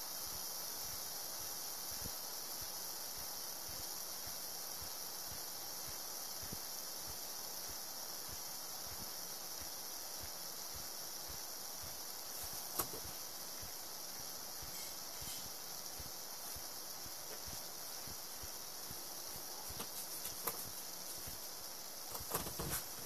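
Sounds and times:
air hissing out of valve: 0:14.6 - 0:15.7.

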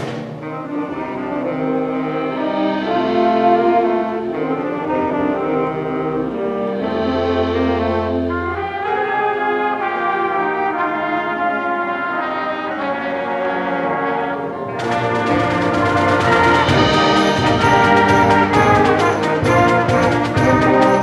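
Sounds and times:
concert band playing chords: 0:00.0 - 0:21.0
percussion striking steady beat: 0:02.3 - 0:04.6, 0:14.8 - 0:21.0.

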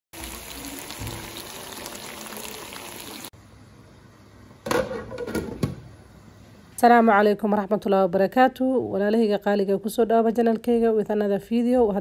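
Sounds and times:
chicken sizzling in oil: 0:00.2 - 0:03.3.

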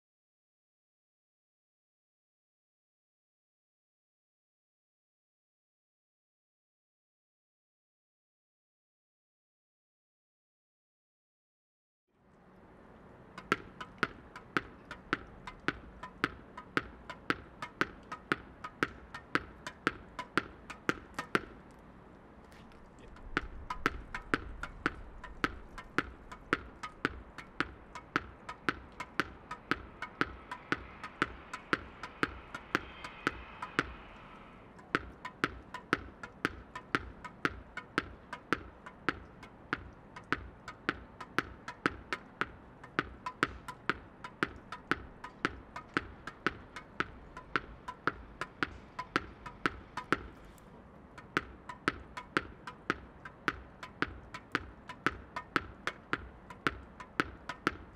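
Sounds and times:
tennis ball bouncing on stone: 0:13.4 - 0:21.8, 0:22.5 - 0:34.1, 0:34.8 - 0:50.6, 0:51.2 - 0:57.9.

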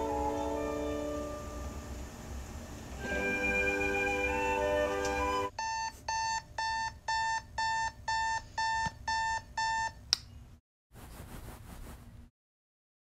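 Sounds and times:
alarm clock beeping: 0:05.4 - 0:10.0.

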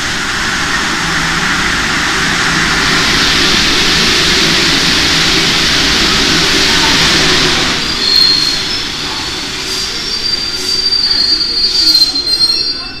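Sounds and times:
train rolling noise: 0:00.0 - 0:13.0
train brake squeal: 0:06.7 - 0:13.0.

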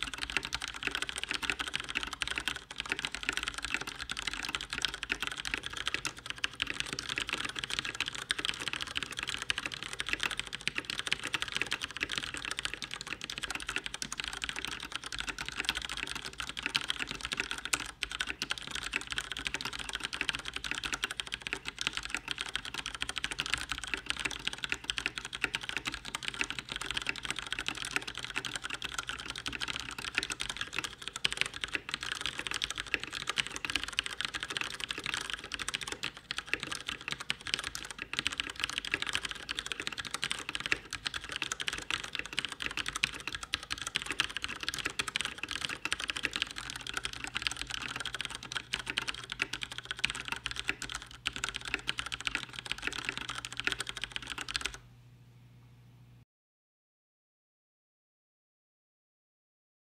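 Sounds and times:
mechanical keyboard typing: 0:00.0 - 0:54.8.

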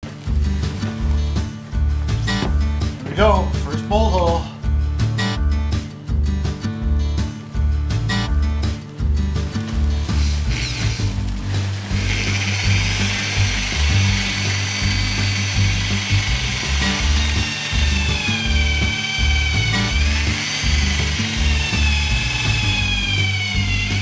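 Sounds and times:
background music with bass line: 0:00.0 - 0:24.0
electric drill boring wood: 0:10.2 - 0:11.2, 0:12.0 - 0:24.0.

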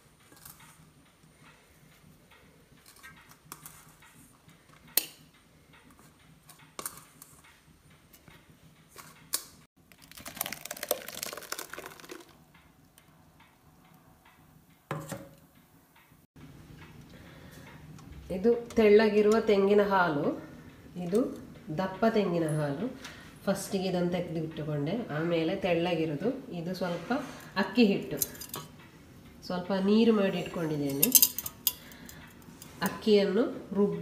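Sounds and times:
utensils clicking and tapping: 0:00.0 - 0:19.8, 0:27.3 - 0:29.4, 0:30.3 - 0:33.1.

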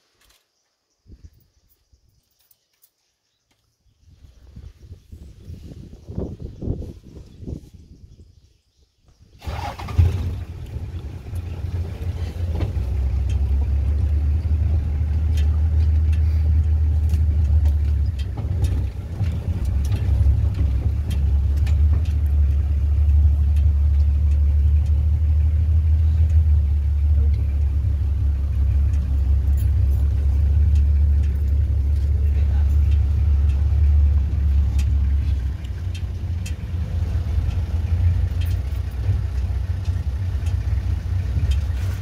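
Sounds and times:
vehicle engine droning: 0:09.4 - 0:42.0.

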